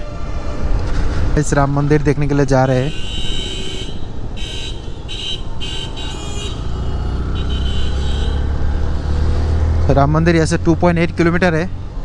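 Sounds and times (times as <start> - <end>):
vehicle horn beeps: 2.8 - 8.5.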